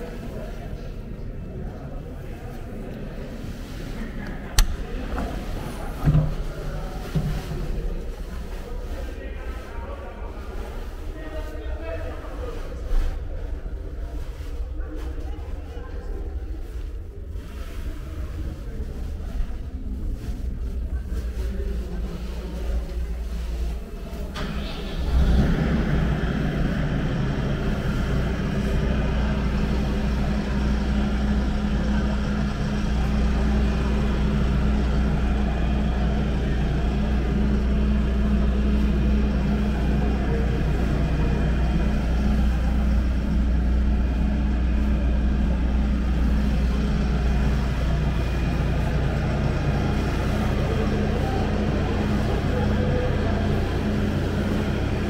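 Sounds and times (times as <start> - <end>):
tractor diesel engine idling: 23.6 - 55.0.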